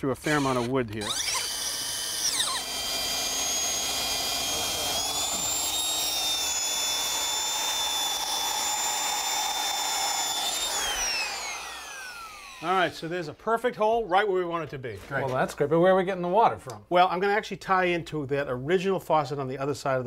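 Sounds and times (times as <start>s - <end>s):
drill bit cutting wood: 0.2s - 13.0s
power drill motor whine: 0.2s - 13.0s.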